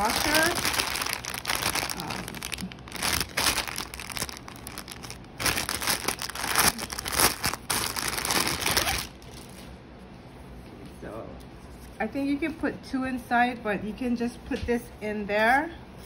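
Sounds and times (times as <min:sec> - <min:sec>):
plastic bags crinkling: 0:00.0 - 0:09.8.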